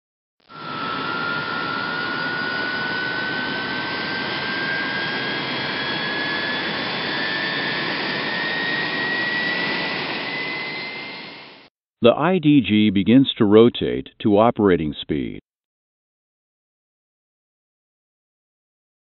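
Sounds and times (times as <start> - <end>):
jet engine spooling up: 0.5 - 11.7.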